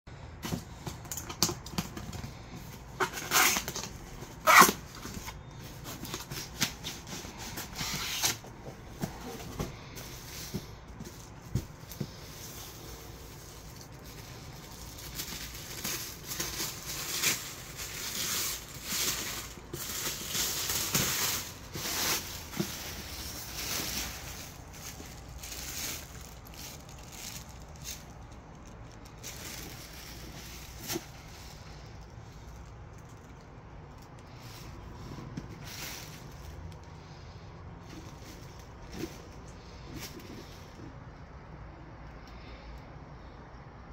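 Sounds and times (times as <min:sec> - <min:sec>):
cardboard scraping and rustling: 0:00.4 - 0:28.3, 0:29.0 - 0:32.5.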